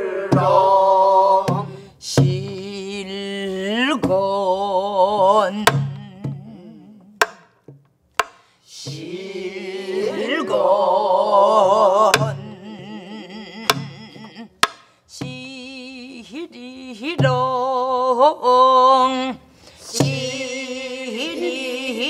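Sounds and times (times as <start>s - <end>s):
voices singing with vibrato: 0.0s - 7.1s, 8.7s - 22.0s
stick strokes on drum: 8.2s - 9.2s.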